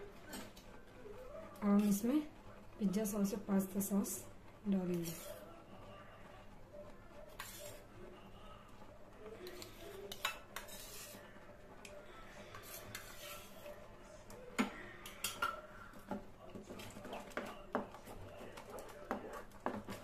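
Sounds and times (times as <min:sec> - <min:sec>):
spatula stirring thick sauce: 0:04.1 - 0:20.0
spatula scraping metal pan: 0:04.9 - 0:05.4, 0:07.3 - 0:07.8, 0:09.4 - 0:11.2, 0:12.5 - 0:13.7.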